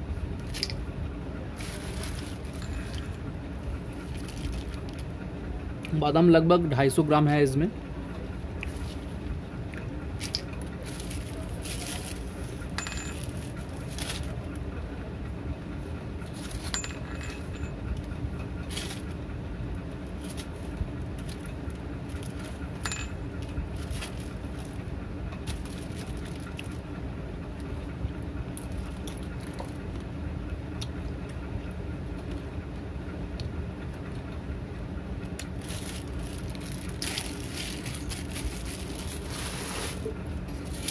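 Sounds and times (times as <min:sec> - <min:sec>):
steady low background hum: 0:00.0 - 0:40.9
almonds clinking in plastic packet: 0:10.2 - 0:14.4, 0:35.6 - 0:40.9.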